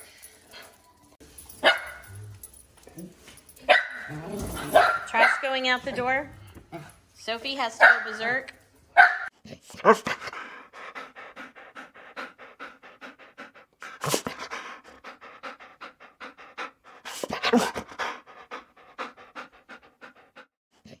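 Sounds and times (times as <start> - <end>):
dog panting: 9.6 - 20.6.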